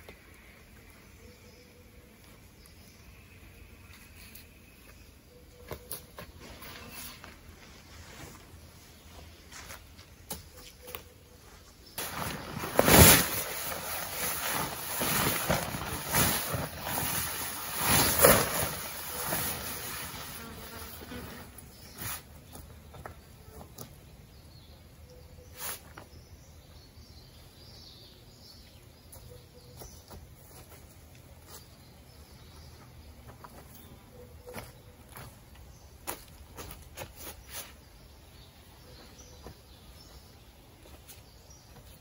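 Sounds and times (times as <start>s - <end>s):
nylon tent fly rustling: 6.4s - 10.1s, 11.8s - 22.7s.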